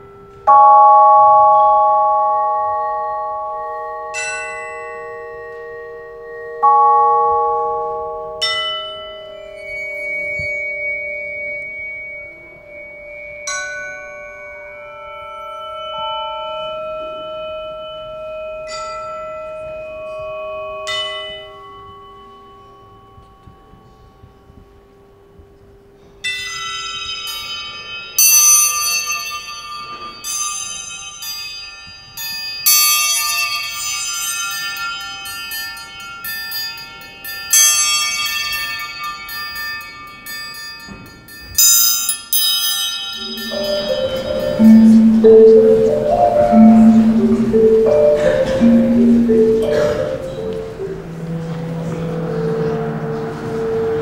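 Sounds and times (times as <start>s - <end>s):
vibraphone chords ringing: 0.0s - 24.0s, 26.6s - 54.0s.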